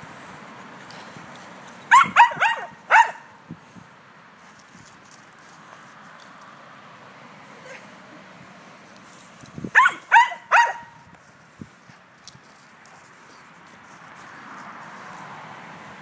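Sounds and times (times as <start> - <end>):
small dog barking: 1.9 - 3.3, 9.7 - 11.0.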